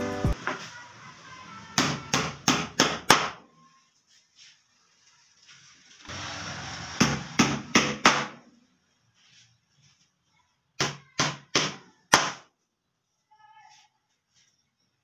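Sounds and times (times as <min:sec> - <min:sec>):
hammer striking nails into wood: 0:01.8 - 0:03.4, 0:07.0 - 0:08.4, 0:10.8 - 0:12.4.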